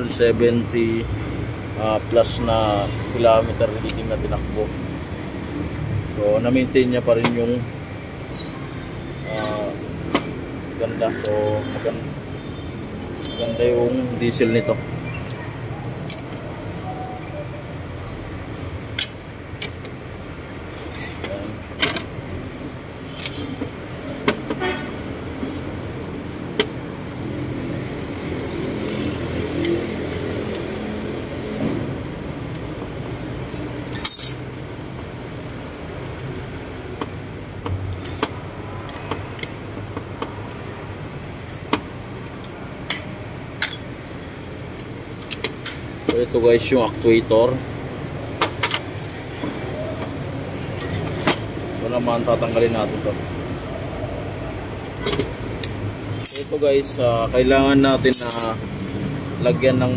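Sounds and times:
metal parts clinking on workbench: 33.9s - 34.5s, 56.2s - 56.6s, 57.9s - 58.6s.

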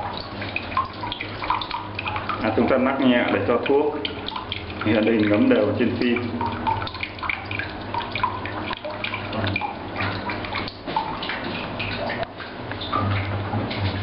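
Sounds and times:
low steady hum: 0.0s - 14.0s
water trickling and dripping: 0.0s - 14.0s.

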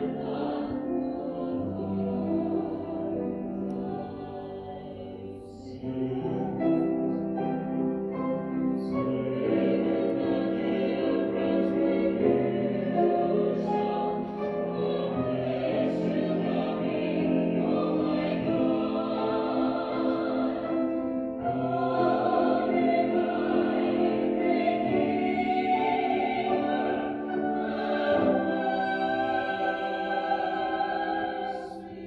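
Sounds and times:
vocal quartet singing in harmony: 0.0s - 32.0s.

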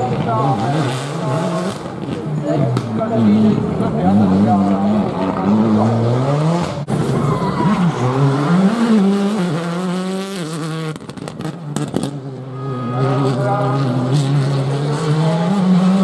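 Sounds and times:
rally car engines at full throttle: 0.0s - 16.0s
engine revving through gear changes: 7.9s - 12.3s, 13.0s - 16.0s.

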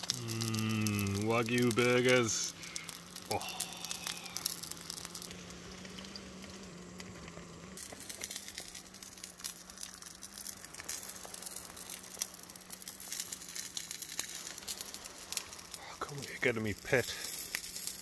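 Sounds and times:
burgers sizzling in frying pan: 0.0s - 18.0s.

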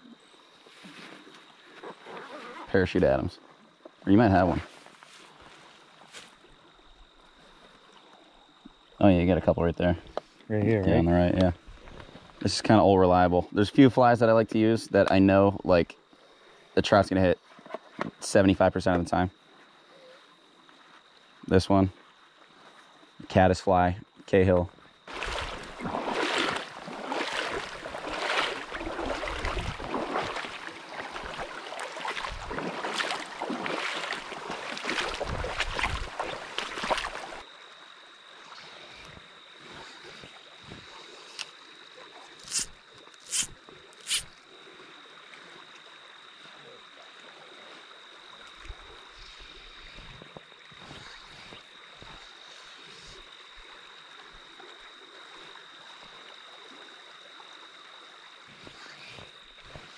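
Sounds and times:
stream flowing: 24.4s - 39.6s, 40.2s - 59.9s
wading through water splashing: 25.0s - 37.5s.

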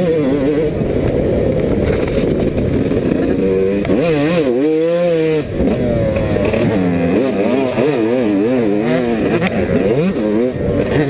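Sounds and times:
wind noise on microphone: 0.0s - 6.8s
motorcycle engine revving: 0.0s - 11.0s.

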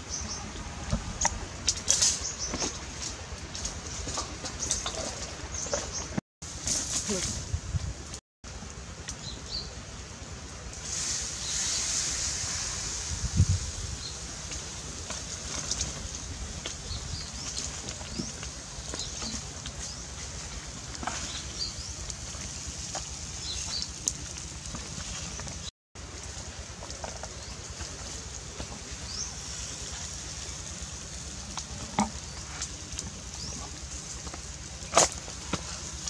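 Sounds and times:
embers crackling and popping: 0.0s - 36.0s
ribs sizzling on a grill: 10.7s - 36.0s.

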